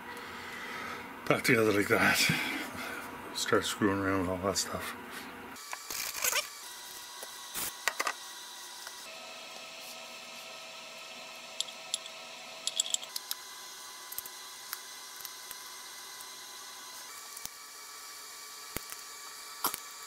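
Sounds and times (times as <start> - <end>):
screwdriver turning screws: 11.6 - 13.4
small metal parts clicking: 11.6 - 13.4.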